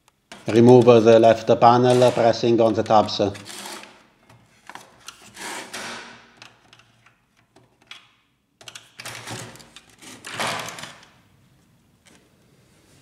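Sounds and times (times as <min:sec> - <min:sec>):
screwdriver scraping plastic: 0:01.8 - 0:04.0.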